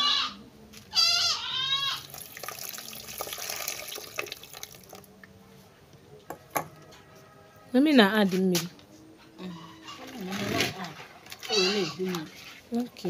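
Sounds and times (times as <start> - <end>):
goat bleating: 0.0 - 2.1, 11.4 - 12.2
liquid pouring and splashing: 2.0 - 5.1.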